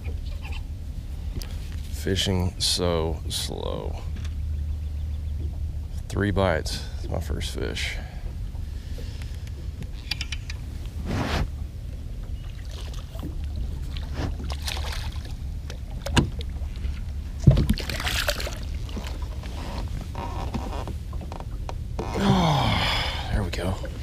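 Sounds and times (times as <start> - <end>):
fish splashing at surface: 17.4 - 19.0.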